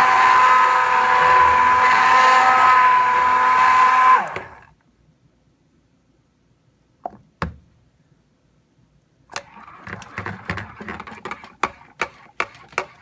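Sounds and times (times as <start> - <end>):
utensils tapping and scraping container: 9.3 - 13.0.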